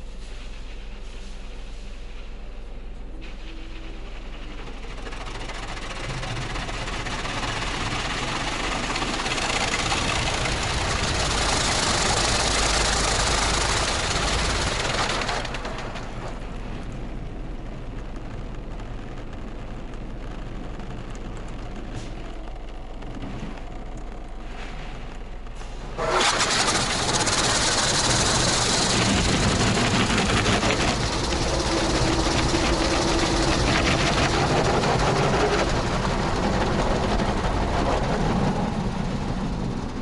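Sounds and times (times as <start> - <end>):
constant low hum: 0.0 - 40.0
car wash machine noise: 3.2 - 40.0
water jets spraying on car: 4.5 - 16.5, 26.0 - 38.7.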